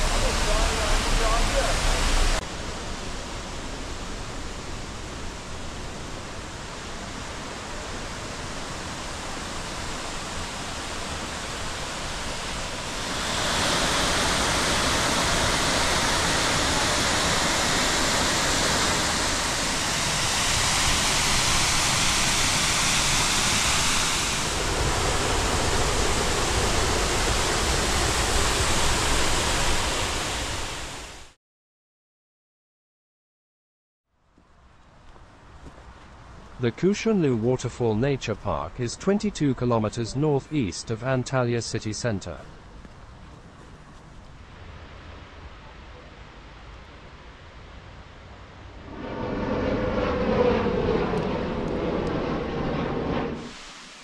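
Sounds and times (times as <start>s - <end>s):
waterfall rushing: 0.0s - 2.4s, 6.8s - 31.2s.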